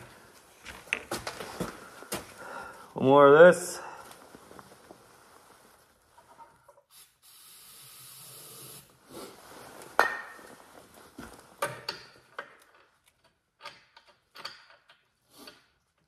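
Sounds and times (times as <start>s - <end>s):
steady hiss: 6.9s - 10.0s.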